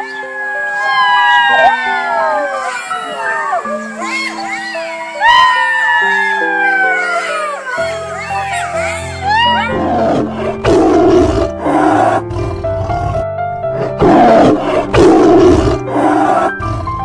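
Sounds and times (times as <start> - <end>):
big cat roaring and growling: 9.3 - 17.0.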